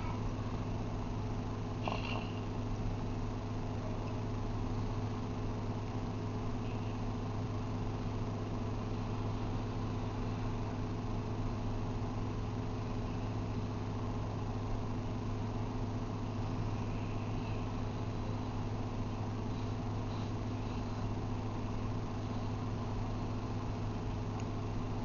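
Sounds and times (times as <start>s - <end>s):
low machine hum: 0.0s - 25.0s.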